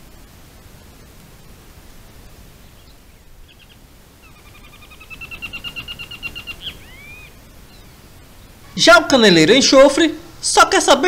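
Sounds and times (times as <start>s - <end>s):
bird calling: 2.6s - 10.4s.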